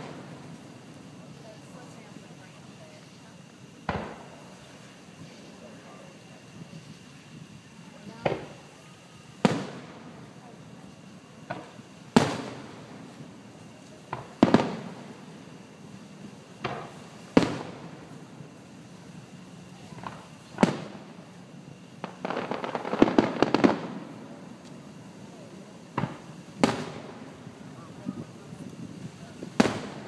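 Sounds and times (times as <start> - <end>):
fireworks bursting: 0.0 - 30.0
crackling pops: 24.6 - 24.8.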